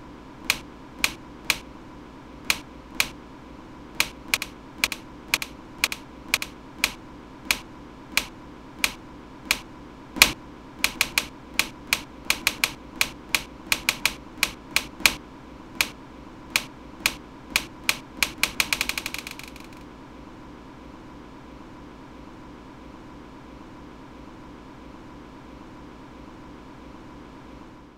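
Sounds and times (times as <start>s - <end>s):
sharp dry clicks: 0.4s - 1.6s, 2.5s - 3.2s, 4.0s - 9.6s, 10.2s - 15.2s, 15.8s - 19.8s.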